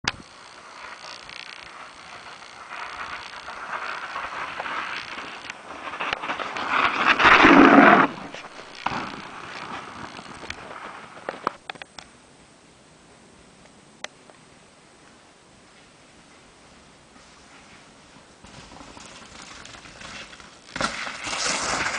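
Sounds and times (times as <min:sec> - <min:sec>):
mountain bike tyre noise: 0:00.0 - 0:11.9, 0:15.6 - 0:21.9
sharp clicks: 0:08.4 - 0:12.2
bike landing thud: 0:18.4 - 0:21.9.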